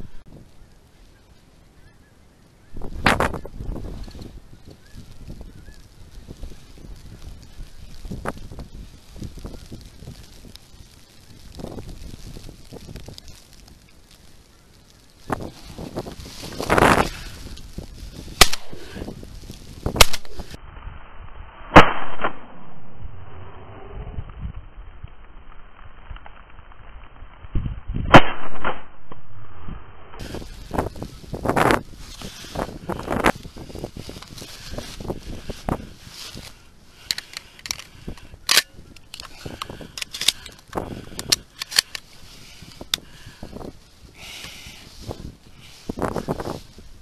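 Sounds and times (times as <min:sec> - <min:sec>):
shotgun shots: 0:18.4 - 0:18.8, 0:28.1 - 0:28.9.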